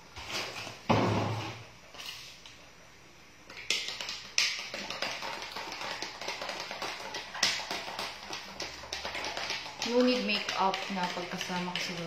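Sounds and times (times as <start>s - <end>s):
taps and clicks on kitchen counter: 3.5s - 12.0s.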